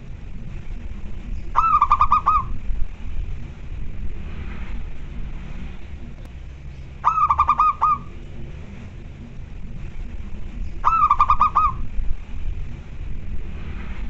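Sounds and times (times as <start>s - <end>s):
dove cooing: 1.4s - 2.7s, 7.0s - 8.3s, 10.8s - 12.0s.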